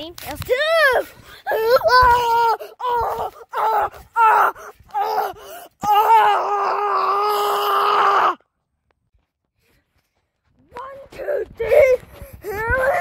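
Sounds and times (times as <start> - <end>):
boy yelling: 0.5 - 8.4, 10.8 - 13.0.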